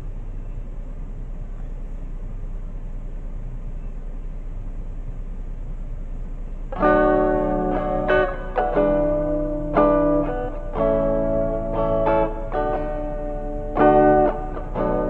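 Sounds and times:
low background rumble and hum: 0.0s - 15.0s.

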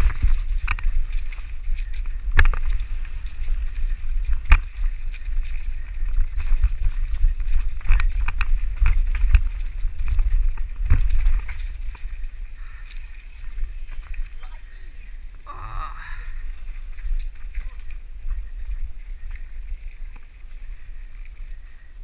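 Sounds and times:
bike knocking and rattling: 0.0s - 14.9s
wind buffeting microphone: 0.0s - 22.0s.

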